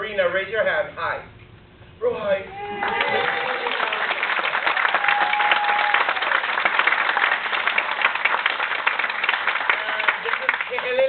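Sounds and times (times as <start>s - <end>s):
audience applauding: 2.6s - 11.0s.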